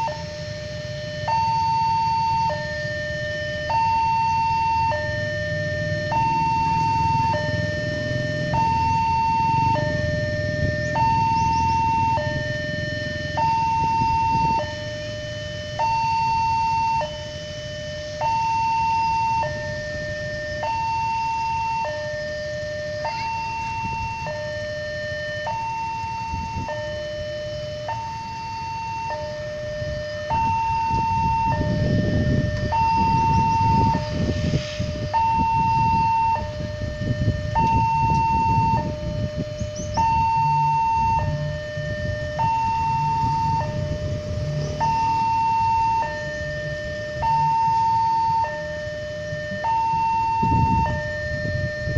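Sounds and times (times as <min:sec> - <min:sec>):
level crossing two-tone alarm: 0:00.0 - 0:51.9
low rumble: 0:29.5 - 0:47.9.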